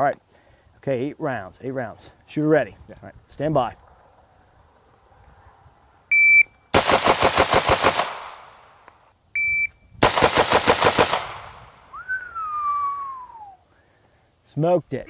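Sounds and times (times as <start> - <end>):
rapid rifle shots: 6.8 - 8.5, 10.0 - 11.6.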